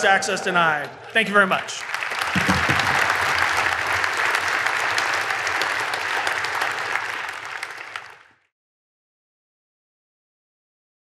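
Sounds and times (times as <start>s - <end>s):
audience applauding: 0.5s - 8.5s.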